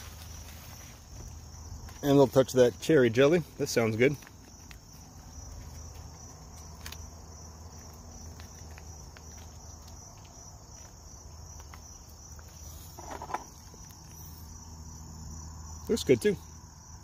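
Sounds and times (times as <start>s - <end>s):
hand rustling bread: 0.0s - 2.1s
high-pitched insect trill: 0.0s - 17.0s.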